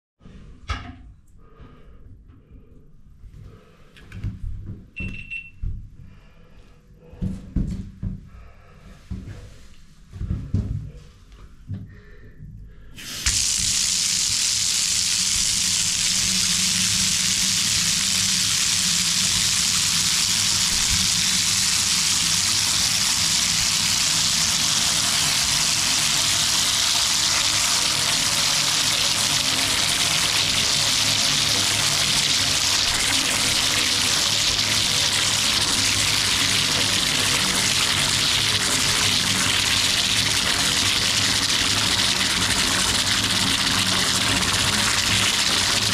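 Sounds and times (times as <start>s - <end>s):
water gushing into bathtub: 13.0s - 45.9s.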